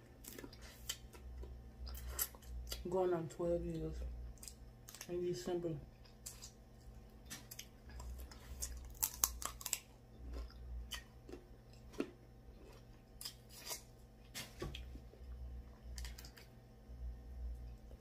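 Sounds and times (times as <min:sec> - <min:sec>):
chewing: 0:06.0 - 0:13.9
crab shells cracking: 0:07.3 - 0:09.9.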